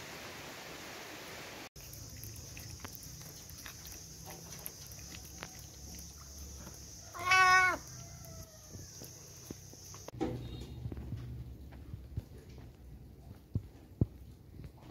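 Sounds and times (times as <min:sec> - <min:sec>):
cat chewing bones clicks: 0:01.8 - 0:06.2
high insect shrill: 0:01.9 - 0:10.1
cat meowing: 0:07.1 - 0:08.0.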